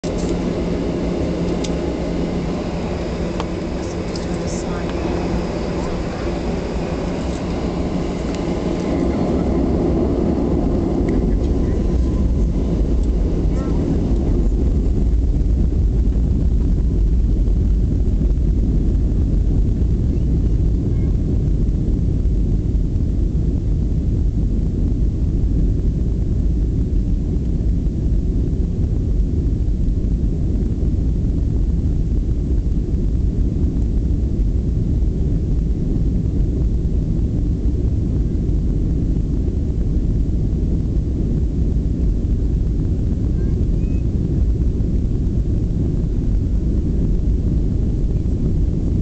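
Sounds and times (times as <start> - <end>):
jet engines roaring on takeoff: 0.0 - 49.0.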